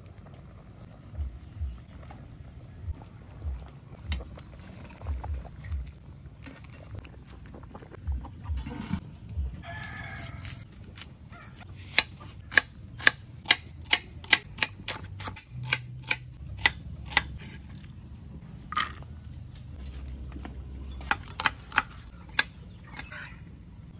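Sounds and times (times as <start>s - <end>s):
rooster crowing: 9.6s - 10.6s.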